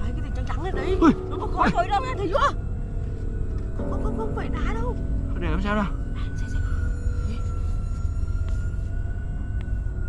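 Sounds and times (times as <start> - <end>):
suspenseful drone music: 0.0 - 10.0.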